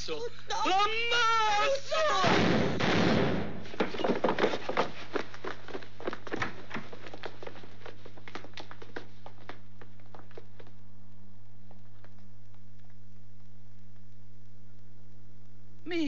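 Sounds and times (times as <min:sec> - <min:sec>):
footsteps of men running: 0:03.7 - 0:13.0
steady low hum: 0:04.8 - 0:16.0.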